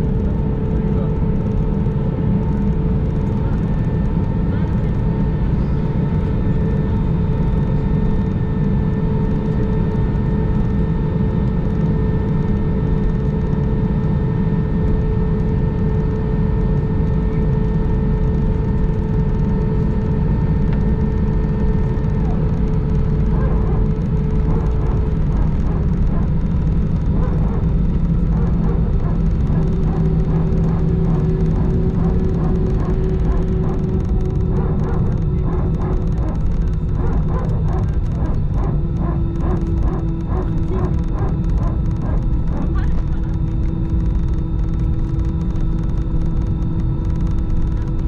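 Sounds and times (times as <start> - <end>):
jet cabin rumble while taxiing: 0.0 - 48.0
steady whining tones: 0.0 - 48.0.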